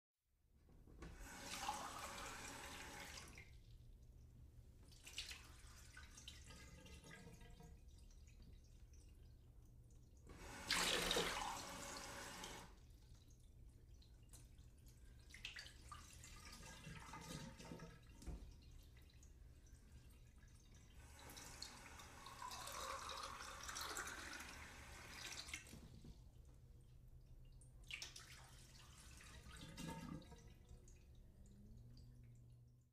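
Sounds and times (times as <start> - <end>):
water drips and splashes: 3.1 - 10.3, 12.8 - 24.6, 25.2 - 32.9
tap water filling a glass: 21.2 - 26.0, 29.2 - 30.6.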